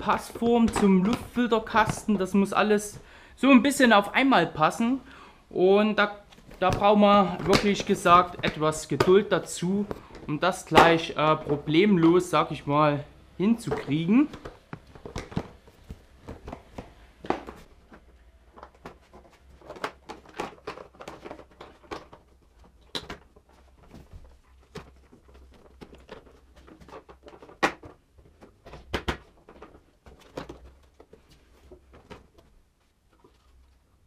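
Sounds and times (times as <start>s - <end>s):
plastic knocks and clacks: 6.3s - 12.4s, 13.4s - 33.8s.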